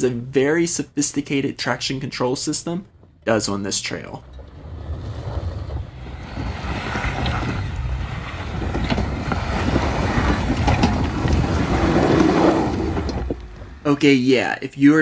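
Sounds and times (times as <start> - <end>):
engine rumble: 0.0 - 15.0
tyres on dirt and rocks: 1.3 - 14.4
wind buffeting microphone: 2.8 - 14.0.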